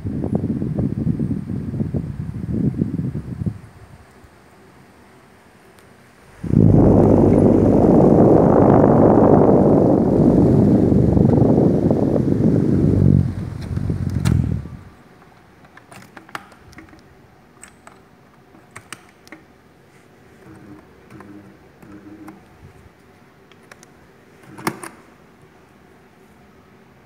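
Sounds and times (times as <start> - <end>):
fan air blowing on microphone: 0.0 - 27.0
fan humming: 0.0 - 27.0
small clicks and knocks: 15.2 - 19.5.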